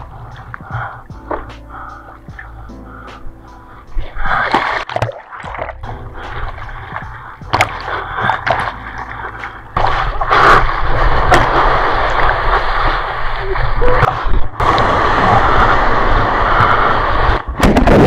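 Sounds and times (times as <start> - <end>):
seawater splashing and gurgling: 0.0 - 18.0
whitewater rushing over board: 4.0 - 18.0.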